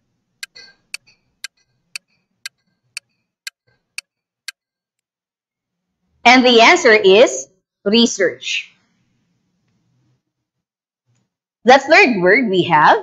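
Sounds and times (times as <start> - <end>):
clock ticking: 0.4 - 4.6.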